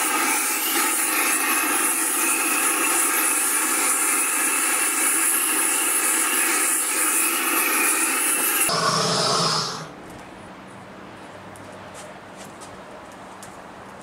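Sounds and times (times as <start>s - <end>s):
propane torch flame hissing: 0.0s - 9.9s.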